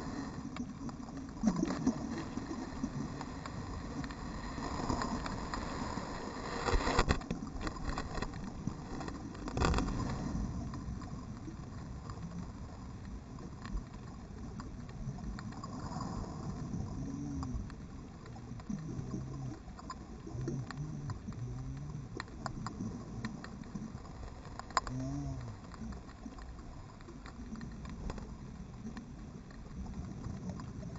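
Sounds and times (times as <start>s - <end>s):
muffled underwater wash: 0.0s - 30.9s
underwater clicks and knocks: 6.6s - 16.0s, 16.9s - 30.9s.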